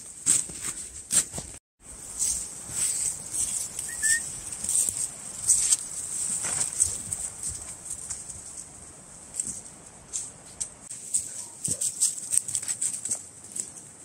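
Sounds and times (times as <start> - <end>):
footsteps crunching in snow: 0.0 - 8.8.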